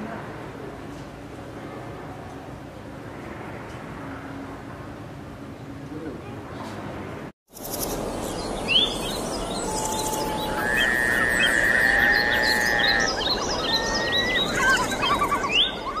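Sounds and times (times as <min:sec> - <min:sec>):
birds chirping: 0:07.5 - 0:16.0
long held bird whistle: 0:08.7 - 0:16.0.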